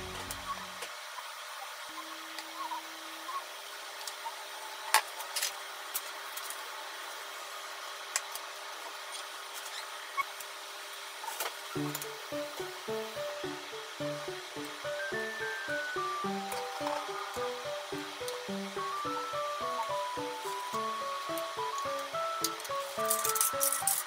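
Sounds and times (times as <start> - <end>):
faint hum: 11.7 - 23.7
steady hiss: 11.7 - 24.0.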